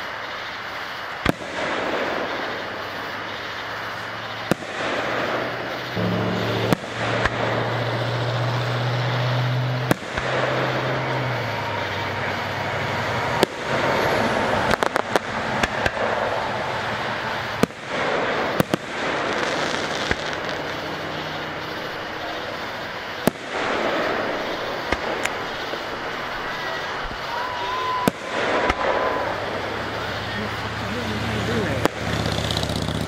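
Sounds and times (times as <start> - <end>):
fireworks bursting in sharp bangs: 0.0 - 33.0
steady noisy wash: 0.0 - 33.0
crackling pops: 1.0 - 27.3, 27.9 - 30.7, 31.7 - 33.0
low steady hum: 6.0 - 10.4.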